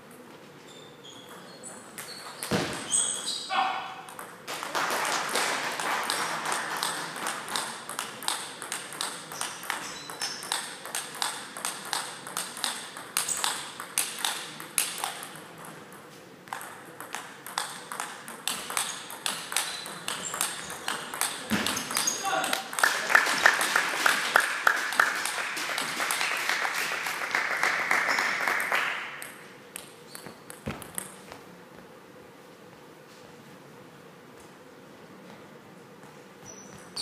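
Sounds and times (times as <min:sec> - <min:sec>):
table tennis balls clicking: 0:04.0 - 0:04.7, 0:05.8 - 0:23.0, 0:28.0 - 0:31.4.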